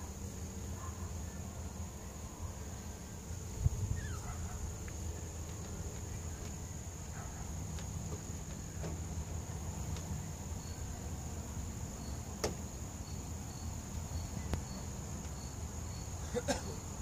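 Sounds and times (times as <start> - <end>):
crickets chirping: 0.0 - 17.0.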